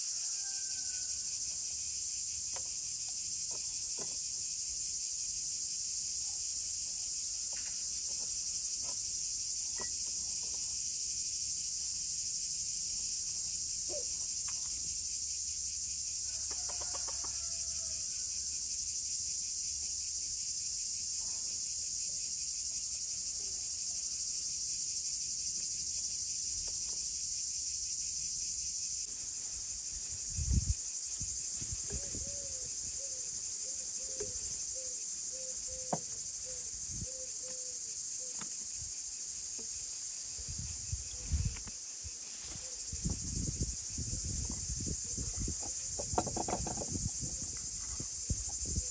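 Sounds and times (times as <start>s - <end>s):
crickets chirping: 0.0s - 48.9s.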